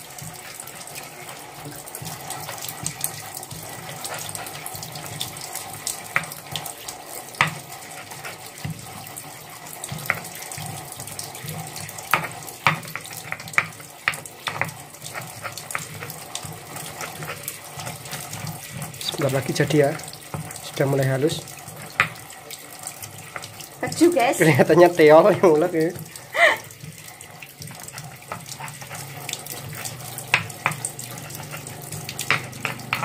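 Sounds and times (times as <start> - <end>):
pestle wet scraping: 0.0 - 33.0
stone knocking on stone: 32.2 - 33.0.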